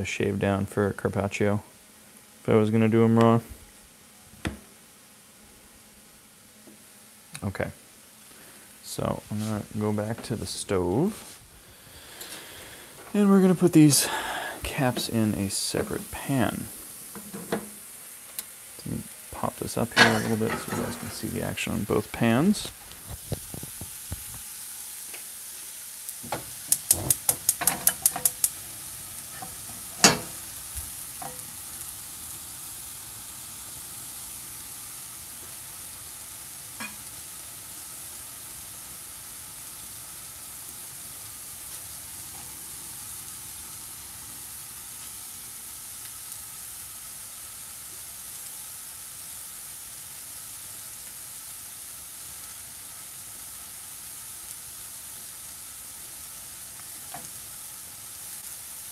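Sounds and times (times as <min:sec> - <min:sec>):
mushrooms sizzling in a pan: 0:00.0 - 0:58.9.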